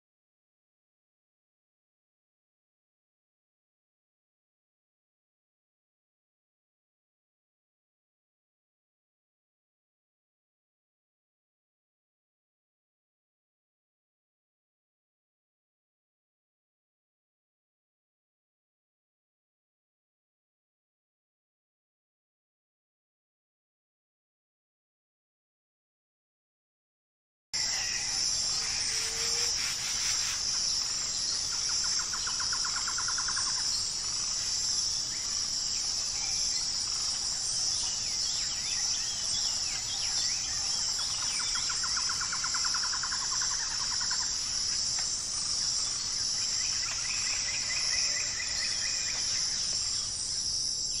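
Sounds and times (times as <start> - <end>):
bird chirps: 27.6 - 34.4
insects chirping chorus: 27.6 - 51.0.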